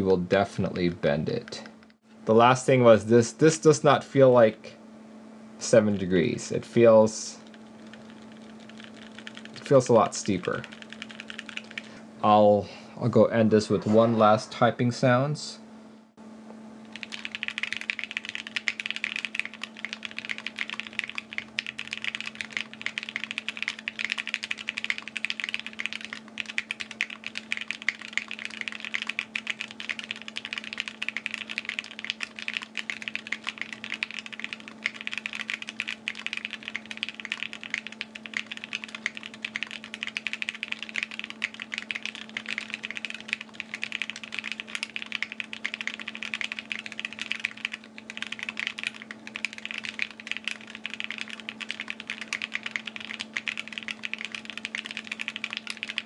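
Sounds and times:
faint low hum: 5.5s - 56.0s
fast typing on mechanical keyboard: 7.4s - 11.9s, 16.9s - 56.0s.

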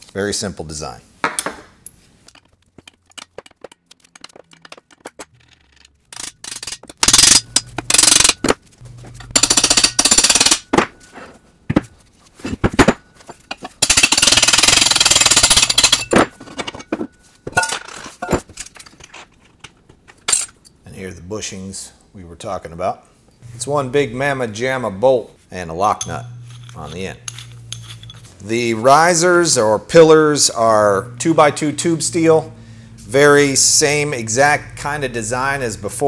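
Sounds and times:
metal clinks: 13.0s - 19.3s.

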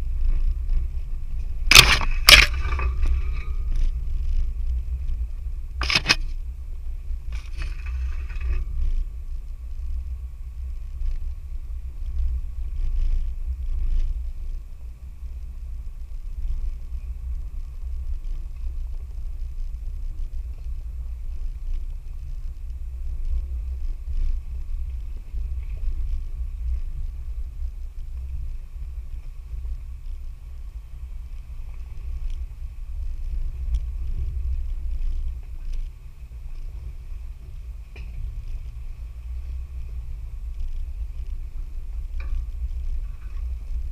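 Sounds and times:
rough scraping: 0.0s - 6.5s, 7.3s - 9.2s
vehicle engine rumble: 0.0s - 43.9s.

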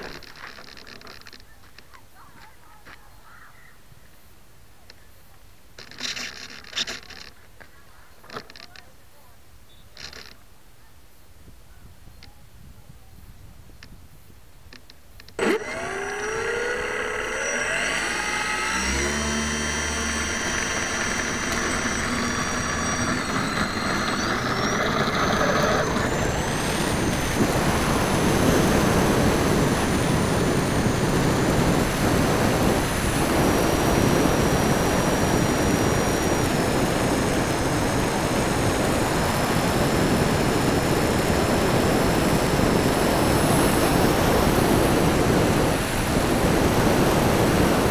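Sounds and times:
propeller motors whining: 15.2s - 47.9s.

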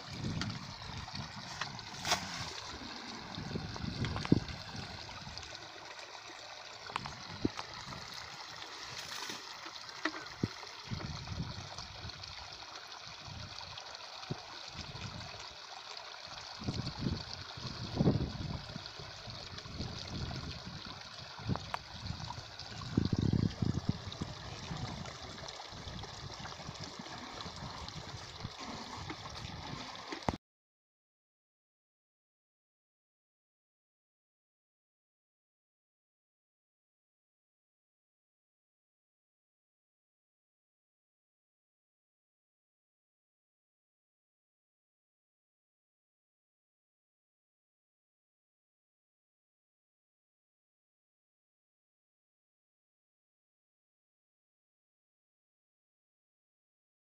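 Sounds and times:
shallow water trickling: 0.0s - 30.4s
hands splashing in water: 1.4s - 2.8s.

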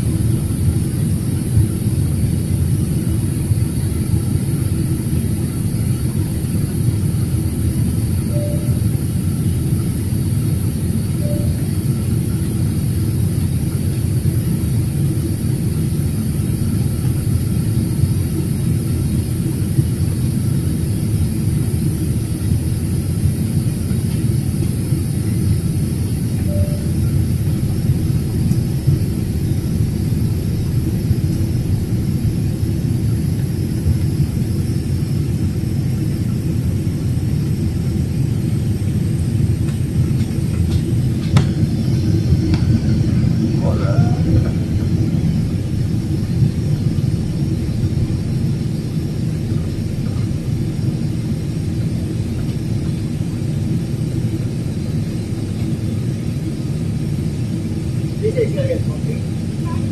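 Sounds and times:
jet engines rumbling: 0.0s - 59.9s
rushing air: 38.9s - 52.2s.

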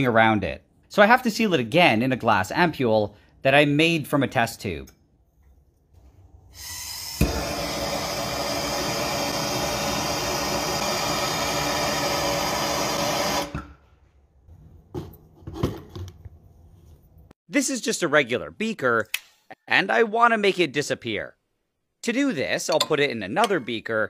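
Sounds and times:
gas torch flame hissing: 6.6s - 13.6s
gas torch lighting with a pop: 7.0s - 12.6s.

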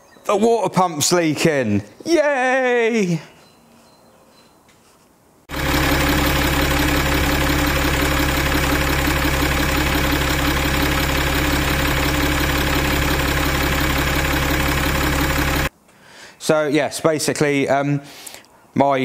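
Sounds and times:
car engine idling: 5.5s - 15.7s.

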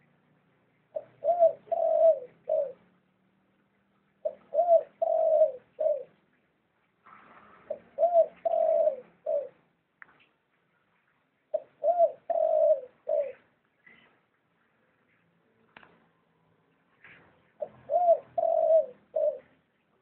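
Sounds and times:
dove cooing: 0.9s - 2.9s, 4.2s - 6.2s, 7.7s - 9.6s, 11.5s - 14.1s, 17.5s - 19.7s.

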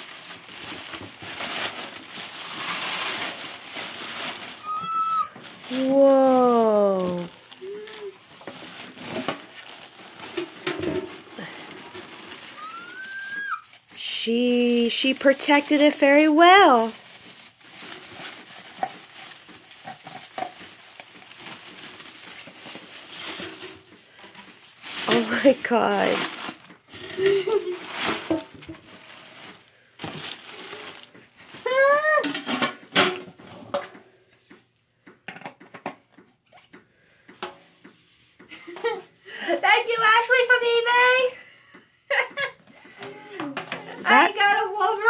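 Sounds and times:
paper packing wrap crackling: 0.0s - 32.0s.

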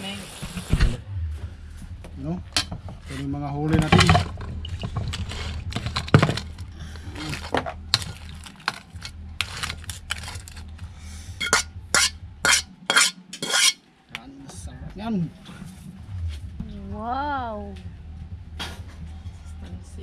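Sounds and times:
crab shells clattering and scraping: 3.8s - 10.8s.

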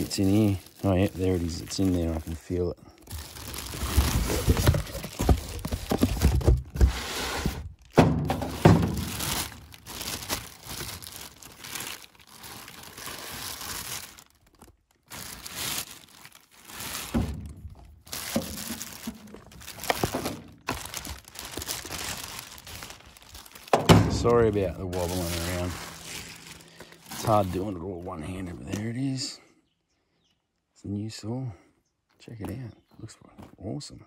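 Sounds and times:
plastic bag crinkling: 0.0s - 28.8s
dull thumps and knocks: 4.0s - 9.2s.

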